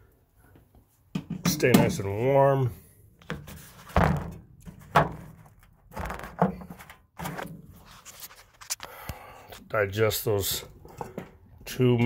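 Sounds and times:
enclosure lid thunks and knocks: 3.4 - 5.4.

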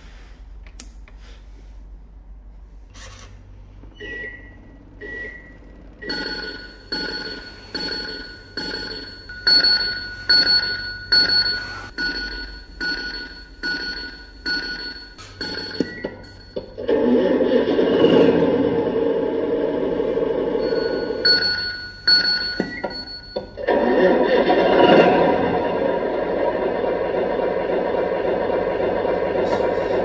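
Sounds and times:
short beeps: 4.0 - 16.8, 20.6 - 23.6
ringing electronic tone: 4.0 - 16.9, 20.3 - 23.7.

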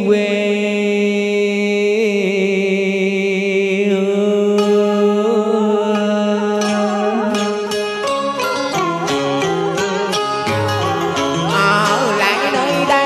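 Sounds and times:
man singing with vibrato: 0.0 - 13.0
plucked string notes: 4.5 - 13.0
sustained backing accompaniment: 5.8 - 13.0.

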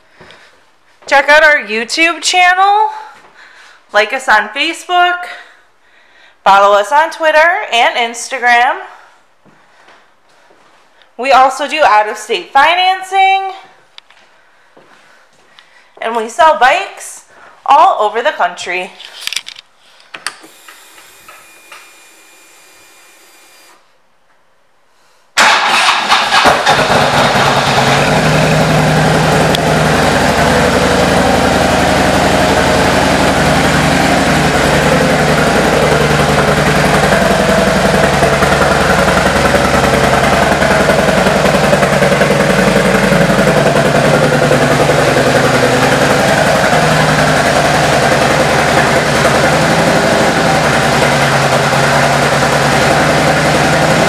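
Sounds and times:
motorcycle engine idling: 25.8 - 54.0.

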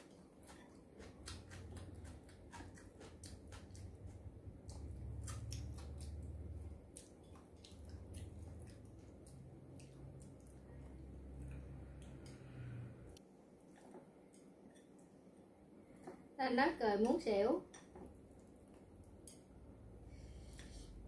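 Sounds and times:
person chewing crunchy food: 0.0 - 12.4.

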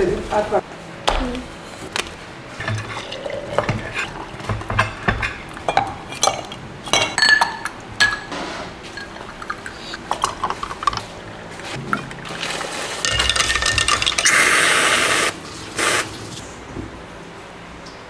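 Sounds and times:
ice cubes clinking in glass: 13.0 - 14.4.

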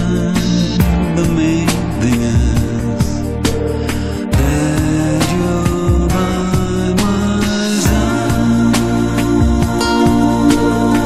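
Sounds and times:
held bass notes: 0.0 - 11.0.

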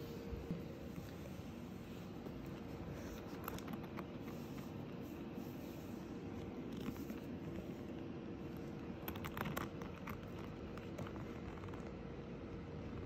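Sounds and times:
faint steady hum: 0.0 - 13.0
hand rubbing dog's fur: 0.8 - 8.0.

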